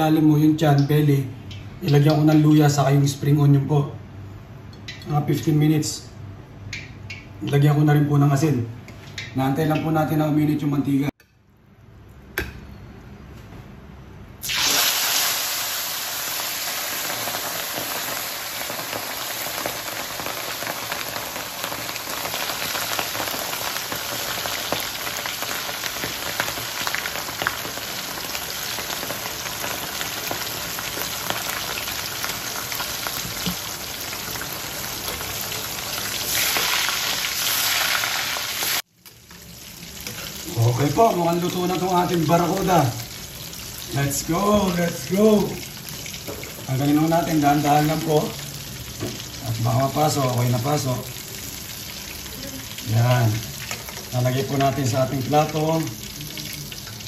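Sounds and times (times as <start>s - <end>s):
fish sizzling in hot oil: 14.4s - 57.0s.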